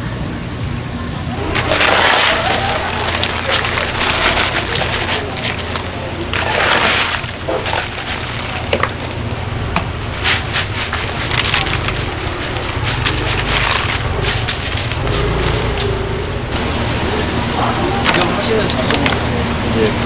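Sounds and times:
low machine hum: 0.0s - 20.0s
crab shells clicking and clattering: 10.3s - 15.0s.

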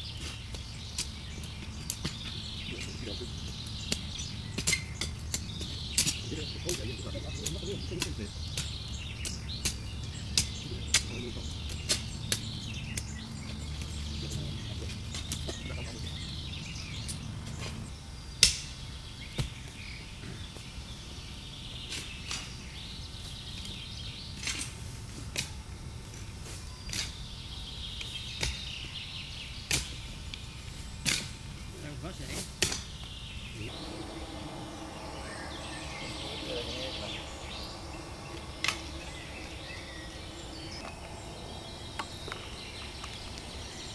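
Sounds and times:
high chirping: 33.4s - 43.9s
low steady rumble: 33.4s - 43.9s.

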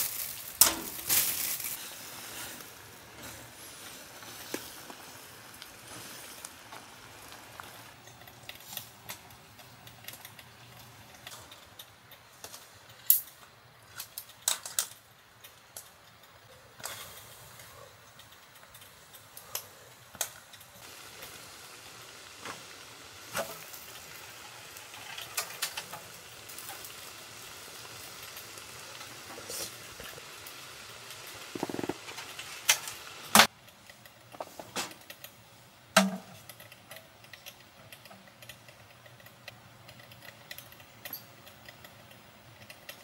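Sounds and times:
food sizzling on grill: 0.0s - 8.0s, 20.8s - 33.5s.

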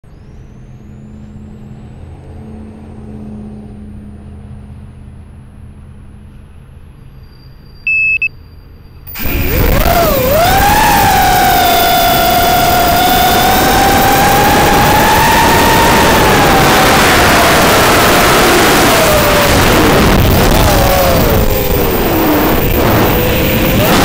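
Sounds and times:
short electronic beep: 7.4s - 9.7s
drone motors whining: 9.1s - 24.0s.

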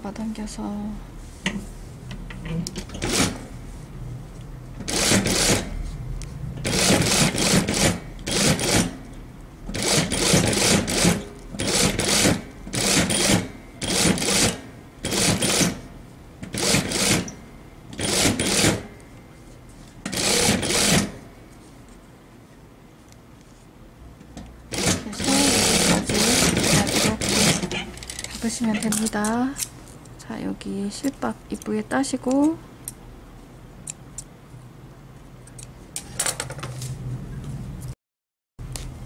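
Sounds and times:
industrial sewing machine stitching: 3.0s - 3.4s, 4.9s - 5.7s, 6.6s - 9.0s, 9.7s - 15.8s, 16.5s - 17.3s, 18.0s - 18.8s, 20.1s - 21.2s, 24.7s - 27.7s.

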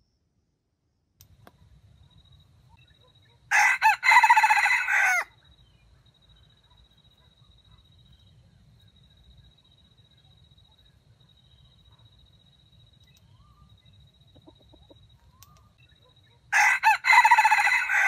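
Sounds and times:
rooster crowing: 3.5s - 5.4s, 16.5s - 18.0s.

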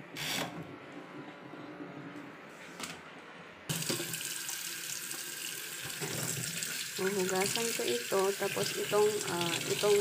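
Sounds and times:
tap water running into steel bowl: 3.7s - 10.0s.

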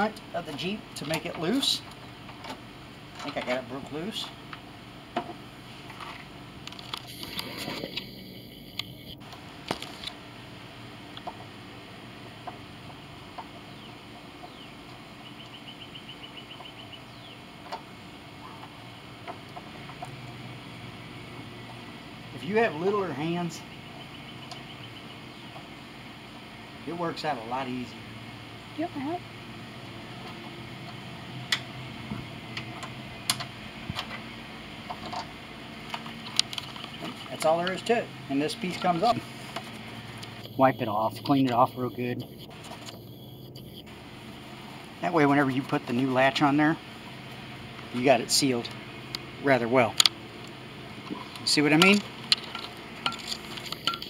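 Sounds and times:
outdoor background noise: 0.0s - 54.0s
bird chirping: 12.9s - 17.6s, 22.4s - 26.3s, 36.0s - 37.8s, 39.8s - 43.9s.

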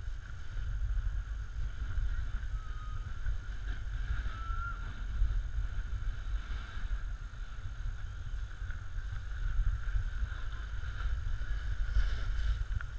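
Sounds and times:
snowboard sliding on packed snow: 3.3s - 12.9s.

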